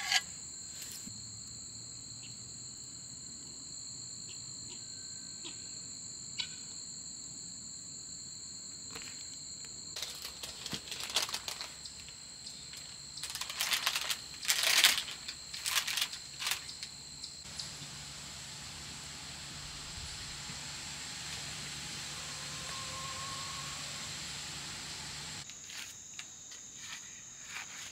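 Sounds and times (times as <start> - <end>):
insect chirring: 8.8 - 27.9
parchment paper crinkling: 10.0 - 17.0.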